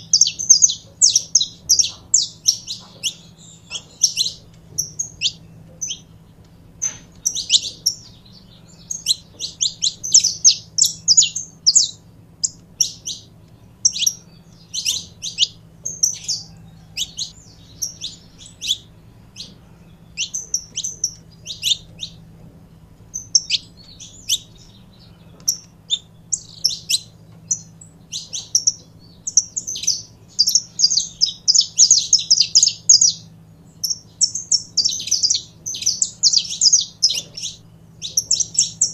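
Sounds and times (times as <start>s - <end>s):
finch singing high chirps: 0.0s - 38.9s.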